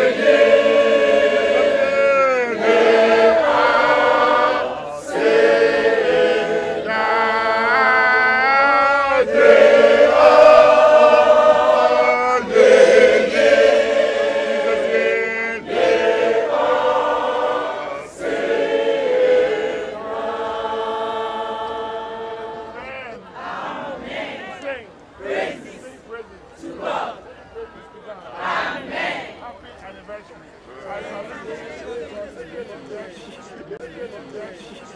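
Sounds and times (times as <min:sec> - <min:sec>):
choir singing a hymn: 0:00.0 - 0:24.6.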